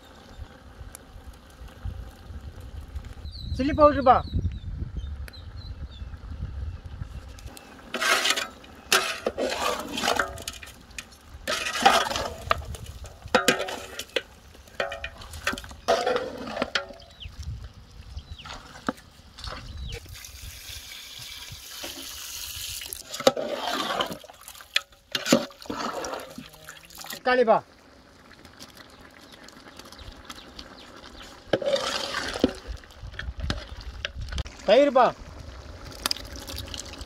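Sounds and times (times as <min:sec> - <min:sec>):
frying hiss: 0:06.8 - 0:37.0
metal spatula scraping a griddle: 0:07.8 - 0:17.0, 0:23.1 - 0:24.2, 0:31.5 - 0:32.6.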